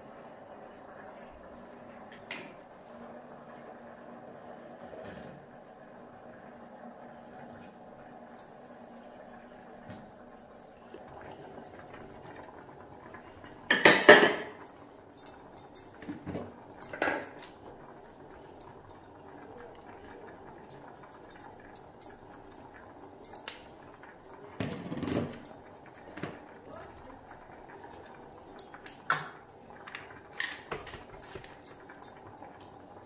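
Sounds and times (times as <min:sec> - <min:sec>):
metal kitchenware clattering: 0:13.7 - 0:19.7, 0:24.3 - 0:27.0, 0:28.2 - 0:32.8.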